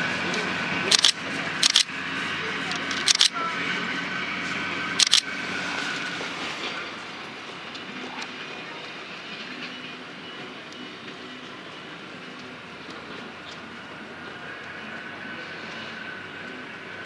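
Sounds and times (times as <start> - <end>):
diesel railcar engine rumble: 0.0 - 17.0
sharp clicks: 0.9 - 1.9, 2.7 - 3.4, 5.0 - 5.3.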